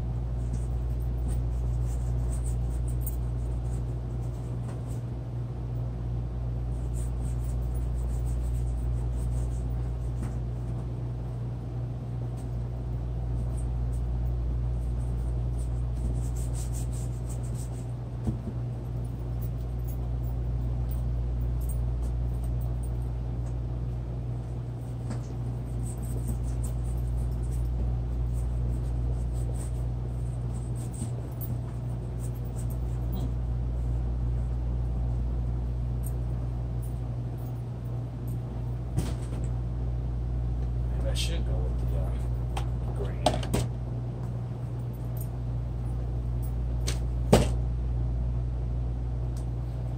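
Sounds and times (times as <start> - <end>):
steady low hum: 0.0 - 49.9
paintbrush scratching on canvas: 0.5 - 4.6, 6.7 - 10.2, 15.6 - 17.9, 28.2 - 33.3.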